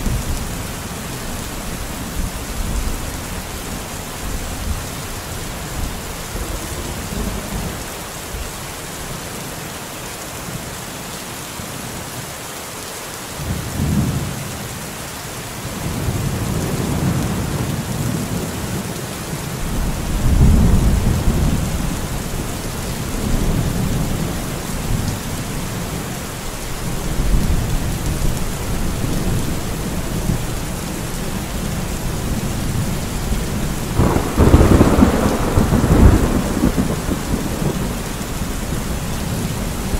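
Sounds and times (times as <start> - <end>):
rain hissing: 15.3 - 39.9
thunder rolling: 19.6 - 22.6, 32.4 - 39.9.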